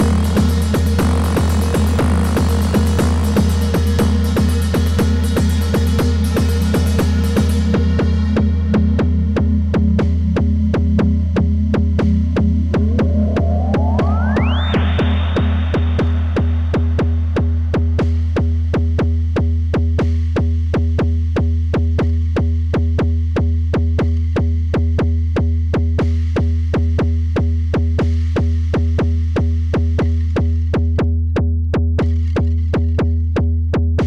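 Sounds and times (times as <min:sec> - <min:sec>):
clicky electronic percussion: 0:00.0 - 0:08.0, 0:12.0 - 0:18.3
deep bass drone: 0:00.0 - 0:27.4
noisy swept wash: 0:12.5 - 0:17.7.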